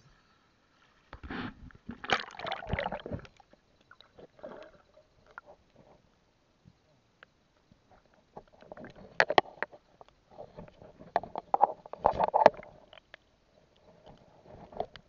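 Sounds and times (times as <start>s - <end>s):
underwater water noise: 0.8s - 15.0s
bubbles gurgling: 1.9s - 5.4s.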